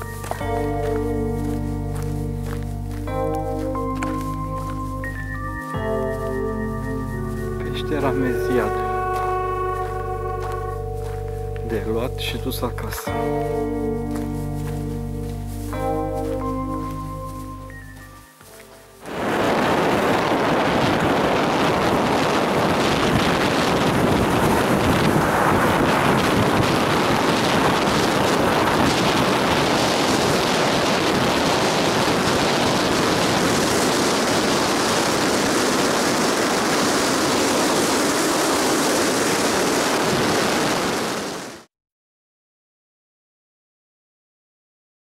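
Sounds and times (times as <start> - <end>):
wind rushing over microphone: 19.0 - 41.7
car road noise: 19.1 - 40.1.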